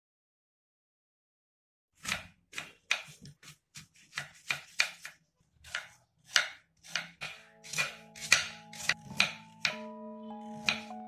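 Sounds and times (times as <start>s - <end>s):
knife slicing apple on board: 2.0s - 9.8s, 10.5s - 11.0s.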